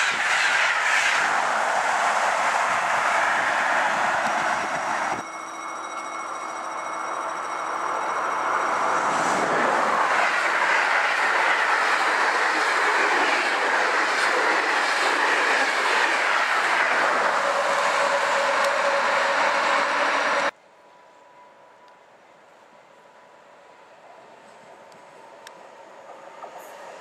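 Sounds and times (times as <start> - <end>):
train passing at speed: 0.0 - 27.0.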